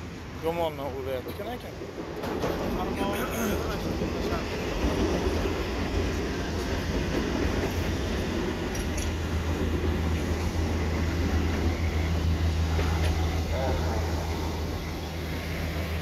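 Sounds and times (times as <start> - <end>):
low engine rumble: 0.0 - 16.0
noisy wash: 0.0 - 16.0
deep droning hum: 8.6 - 16.0.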